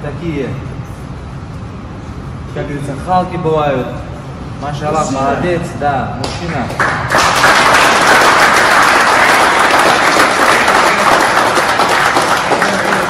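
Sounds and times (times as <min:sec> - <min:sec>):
people clapping: 0:06.2 - 0:13.0.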